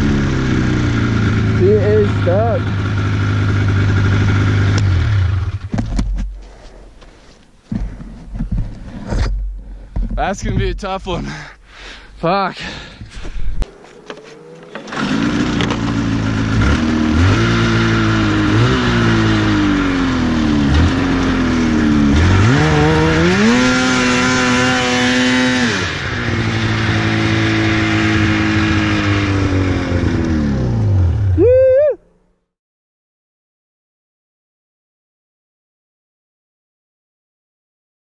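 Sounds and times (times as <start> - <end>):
snowmobile engine revving: 0.0 - 5.7, 10.2 - 31.8.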